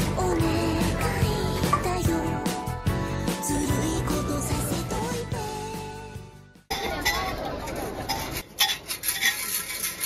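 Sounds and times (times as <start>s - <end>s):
pop song with singing: 0.0s - 6.5s.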